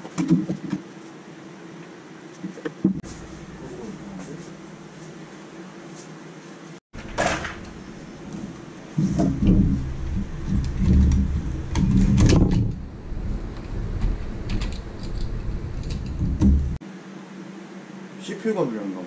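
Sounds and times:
cpu cooler handling bumps: 0:07.0 - 0:16.8
small clicks and rattles: 0:13.5 - 0:16.3.

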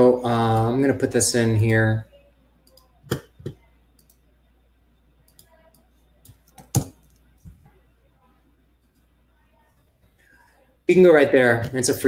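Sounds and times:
keyboard and mouse clicks: 0:02.6 - 0:04.2, 0:05.2 - 0:07.3.

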